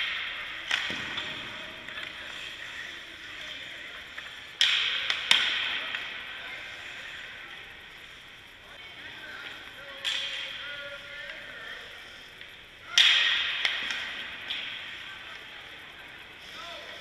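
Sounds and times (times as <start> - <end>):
hockey puck and stick knocks: 0.0 - 2.4, 4.2 - 6.1.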